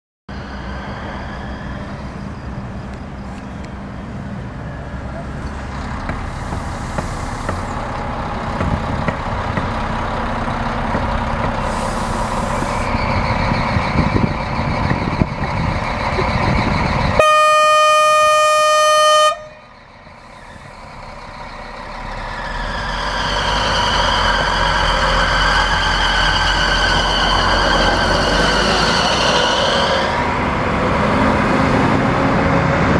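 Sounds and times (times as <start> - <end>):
diesel train running noise: 0.3 - 32.9
train horn blast: 17.2 - 19.6.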